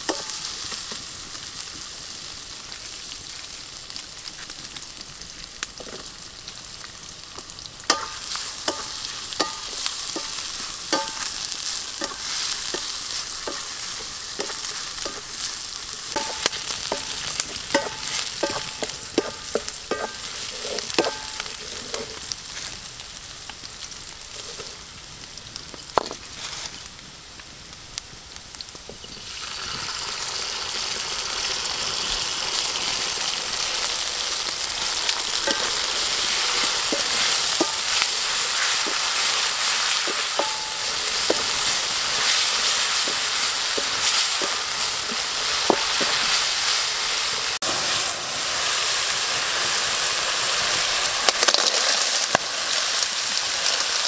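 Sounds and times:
ginger and chillies sizzling in wok: 0.0 - 54.0
wooden spatula tapping and scraping: 7.9 - 22.2, 35.2 - 46.4.

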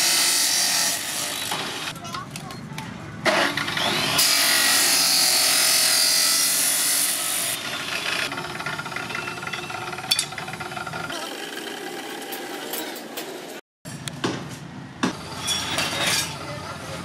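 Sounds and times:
chop saw grinding through steel: 0.0 - 1.9, 3.2 - 8.3
metal clank: 8.6 - 11.0, 15.0 - 16.4.

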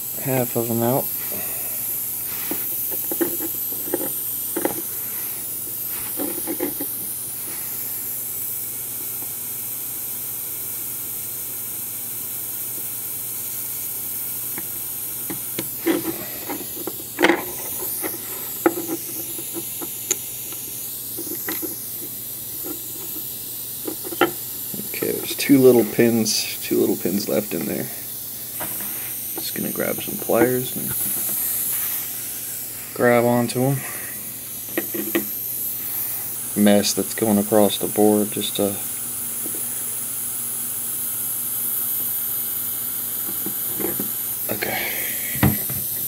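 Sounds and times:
steady hiss: 0.0 - 46.0
tools clicking and tapping: 2.5 - 4.9, 6.1 - 6.9, 15.3 - 20.2, 21.2 - 23.2, 23.8 - 24.8, 34.7 - 35.3, 43.3 - 44.1.

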